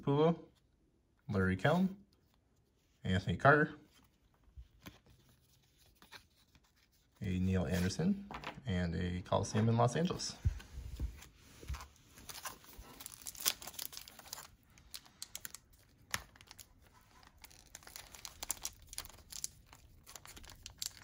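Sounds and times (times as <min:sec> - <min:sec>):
small tearing sounds: 0:12.2 - 0:21.0
wrapper crinkling and tearing: 0:12.2 - 0:21.0.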